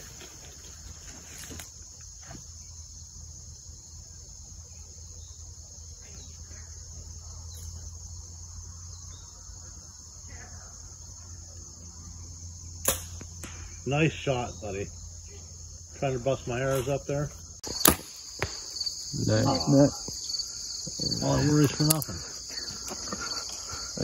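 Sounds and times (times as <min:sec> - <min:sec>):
insects chirping: 0:00.0 - 0:24.0.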